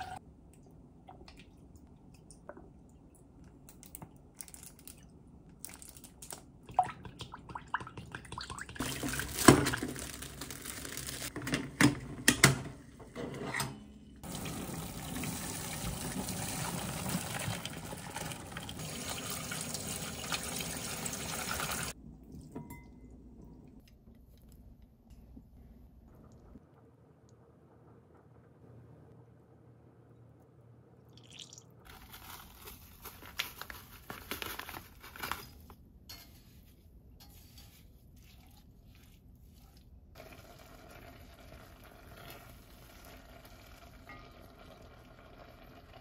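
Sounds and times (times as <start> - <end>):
water pouring into colander: 14.2 - 22.0, 31.2 - 31.7, 40.2 - 46.0.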